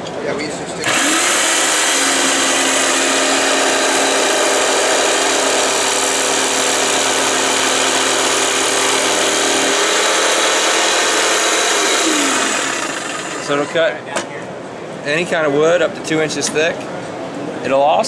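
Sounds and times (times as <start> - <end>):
jigsaw cutting wood: 0.8 - 13.8.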